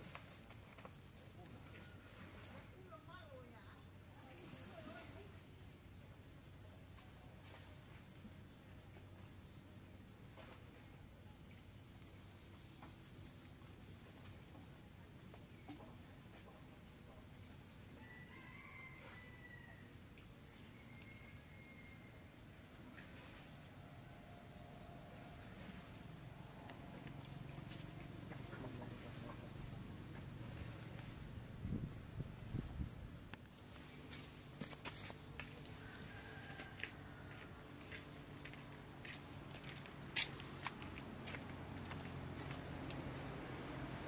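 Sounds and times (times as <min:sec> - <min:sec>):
high-pitched insect drone: 0:27.0 - 0:44.0.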